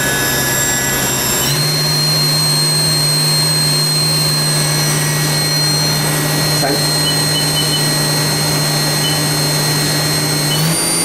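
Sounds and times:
milling machine spindle whine: 0.0 - 11.0.

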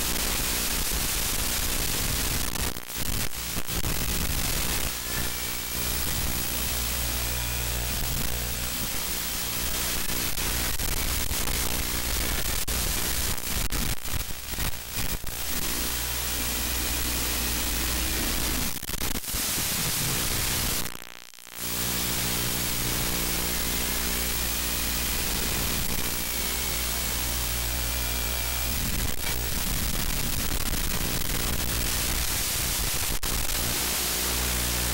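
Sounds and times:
low electrical buzz: 0.0 - 34.9
static hiss: 0.0 - 34.9.

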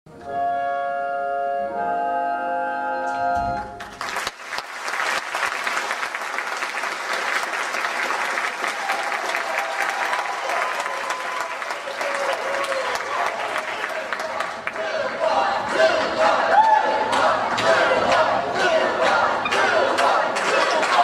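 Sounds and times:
audience applauding: 3.8 - 15.4, 19.5 - 21.0.

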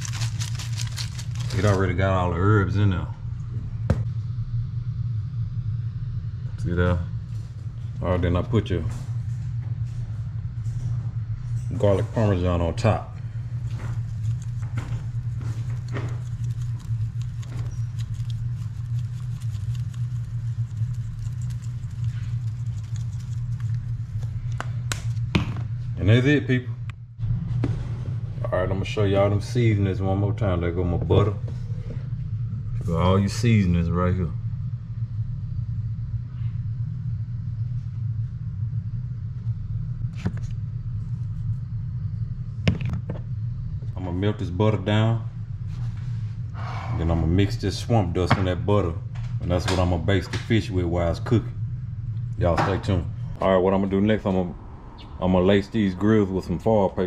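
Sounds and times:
plastic shaker rattling: 0.0 - 1.8
steady low hum: 0.0 - 57.0.

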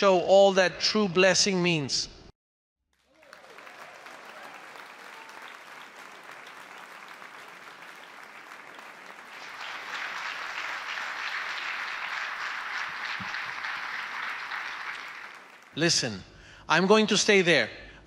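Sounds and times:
audience applauding: 3.0 - 15.8.

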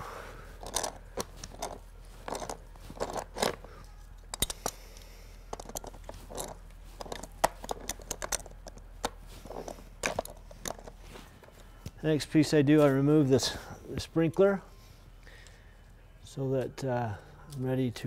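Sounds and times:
plastic fittings clicking and scraping: 0.5 - 3.7, 4.3 - 12.0.

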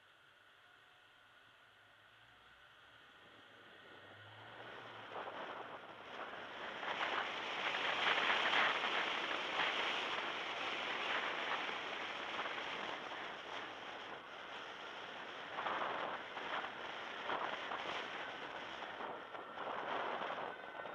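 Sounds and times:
car road noise: 3.2 - 7.9
rushing wind: 3.8 - 20.9.

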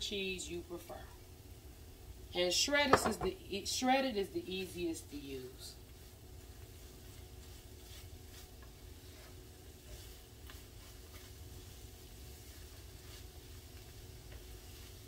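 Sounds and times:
eggs sizzling in a skillet: 1.3 - 15.0
spatula scraping a pan: 6.4 - 15.0.

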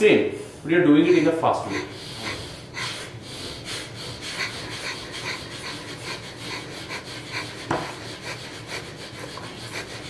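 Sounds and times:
forceful nasal exhales: 1.2 - 9.2.

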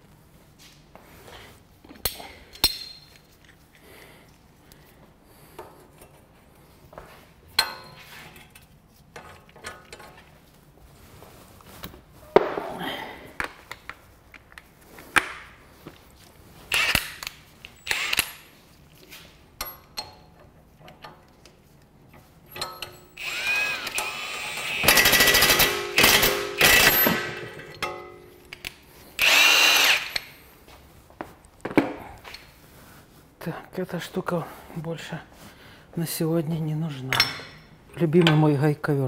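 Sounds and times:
metallic knocks of tools handled: 2.0 - 3.2, 7.6 - 8.1, 22.6 - 23.1, 27.0 - 28.7
power tool motor whining: 17.8 - 18.3, 23.2 - 27.4, 29.2 - 30.3.

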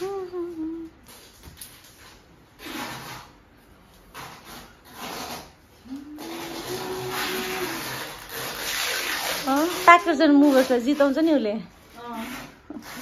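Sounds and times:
cable rubbing through hand: 4.2 - 13.0.

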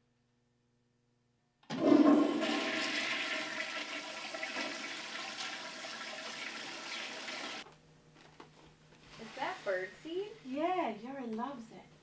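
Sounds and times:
toilet flushing: 1.7 - 7.6.

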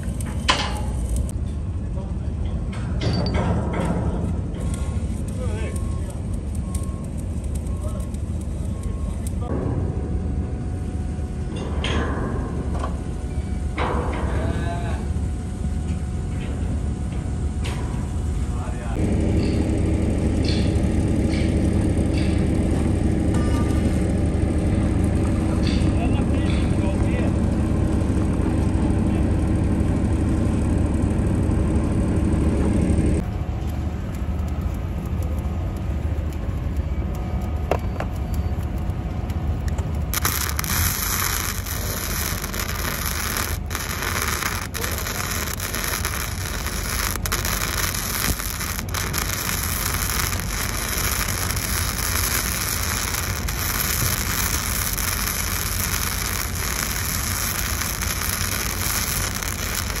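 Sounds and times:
welding arc crackling and sizzling: 0.0 - 1.4, 4.3 - 9.5, 33.2 - 60.0
low steady rumble: 0.0 - 60.0.

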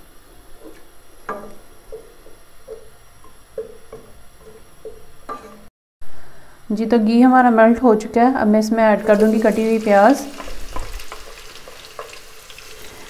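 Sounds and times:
wooden spoon knocking on pot: 3.6 - 5.5.

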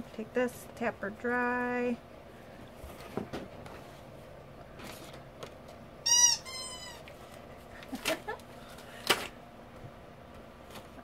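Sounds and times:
rubber squeak: 6.0 - 7.1.

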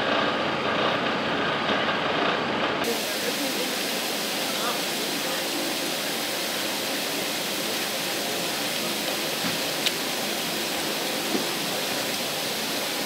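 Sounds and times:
water spraying from a leak: 2.8 - 13.0
faint clicks: 9.8 - 10.0.

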